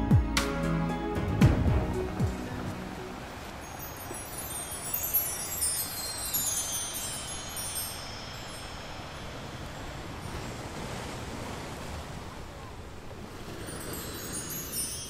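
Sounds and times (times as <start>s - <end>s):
soft steady hiss: 2.0s - 15.0s
shimmering chimes cascade: 3.5s - 10.9s, 13.6s - 15.0s.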